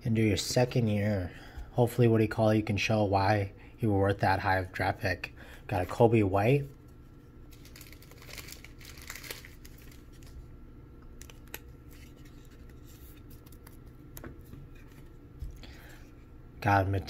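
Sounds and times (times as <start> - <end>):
cards rustling in plastic sleeve: 7.5 - 10.5, 11.2 - 15.7.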